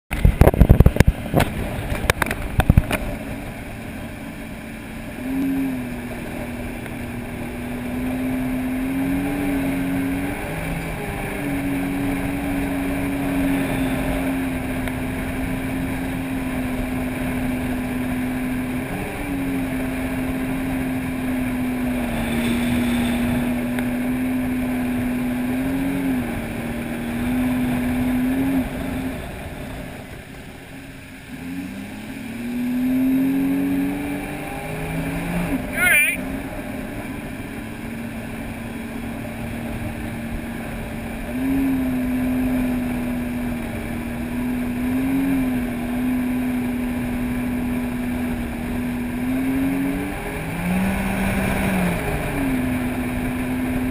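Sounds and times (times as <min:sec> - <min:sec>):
watercraft engine droning: 0:00.1 - 0:53.9.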